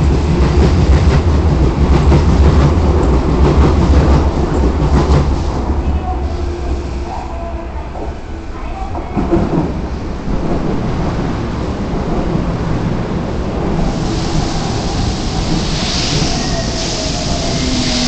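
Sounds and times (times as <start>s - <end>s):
train wheels rumbling: 0.0s - 18.0s
hiss: 13.8s - 18.0s.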